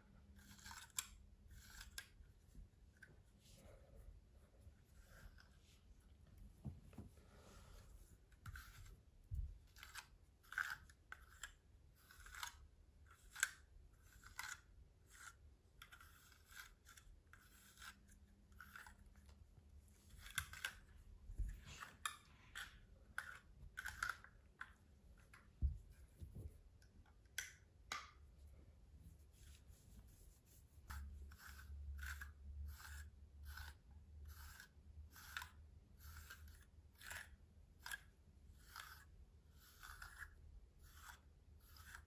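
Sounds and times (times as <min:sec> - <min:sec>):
brush stroking through dog fur: 0:28.9 - 0:33.8.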